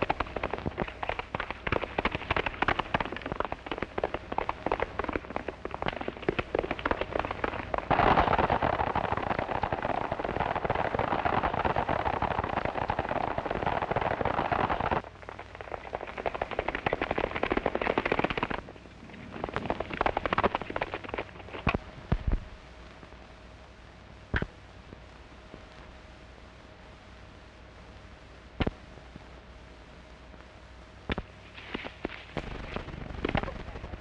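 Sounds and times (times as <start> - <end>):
galloping horses hoofbeats: 0.0 - 18.6, 19.2 - 21.8.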